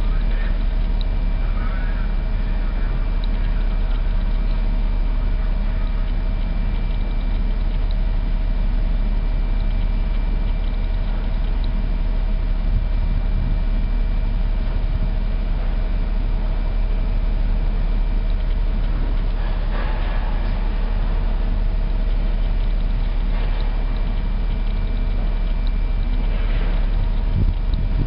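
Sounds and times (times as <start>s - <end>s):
high-pitched hum: 0.0s - 28.0s
low rumble of ship machinery: 0.0s - 28.0s.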